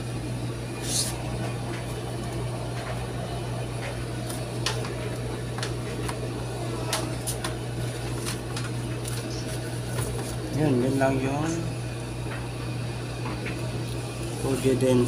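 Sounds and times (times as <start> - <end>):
steady low hum: 0.0 - 15.0
paper pages rustling: 7.0 - 10.6.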